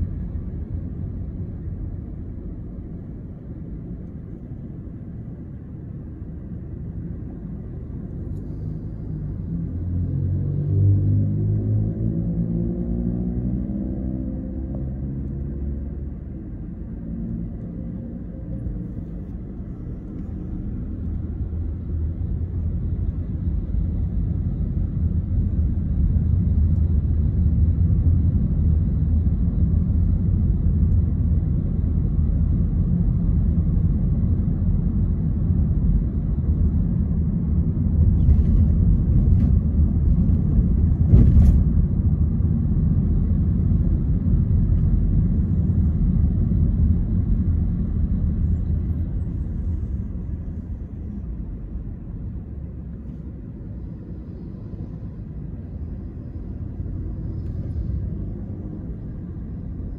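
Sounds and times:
car engine and tyres rumbling: 0:00.0 - 0:59.9.

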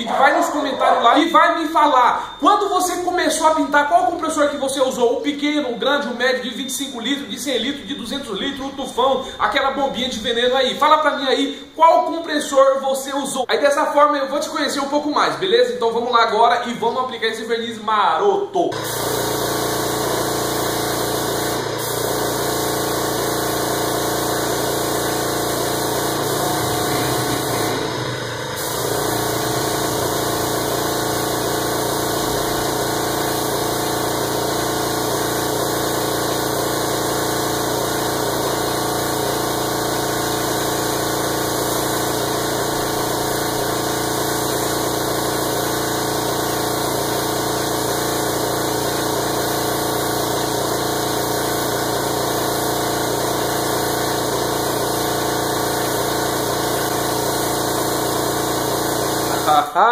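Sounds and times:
air compressor humming: 0:00.0 - 0:05.8, 0:06.7 - 0:10.8, 0:18.7 - 0:59.8
spray gun hissing: 0:18.8 - 0:59.6.

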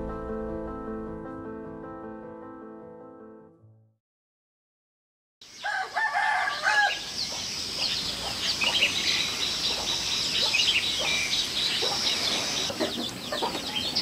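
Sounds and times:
small birds chirping: 0:05.4 - 0:14.0
rooster crowing: 0:05.6 - 0:07.3.

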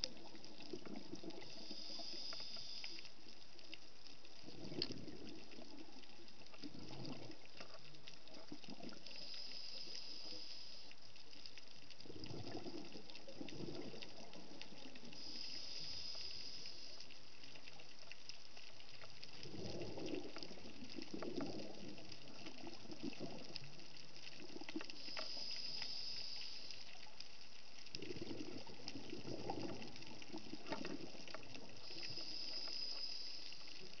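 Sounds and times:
regulator inhale hiss: 0:01.3 - 0:03.3, 0:09.0 - 0:11.2, 0:15.0 - 0:17.6, 0:24.9 - 0:27.2, 0:31.4 - 0:34.0
exhaled bubbles rumbling: 0:04.4 - 0:09.1, 0:12.0 - 0:15.3, 0:19.4 - 0:25.1, 0:27.7 - 0:32.4.

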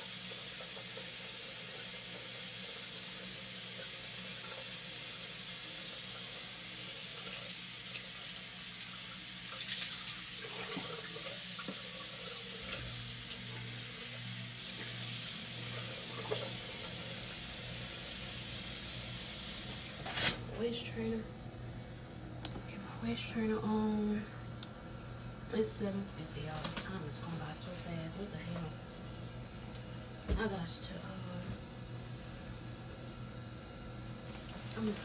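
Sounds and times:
faucet running into sink: 0:00.0 - 0:20.1.

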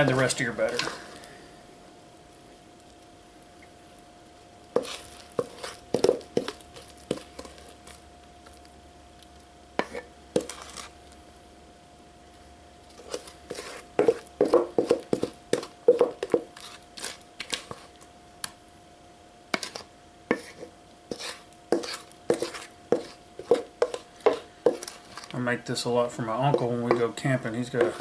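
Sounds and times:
wooden spoon scraping metal bowl: 0:00.0 - 0:01.0, 0:04.8 - 0:08.0, 0:09.8 - 0:11.0, 0:12.9 - 0:17.9, 0:19.6 - 0:25.4, 0:26.2 - 0:28.0.

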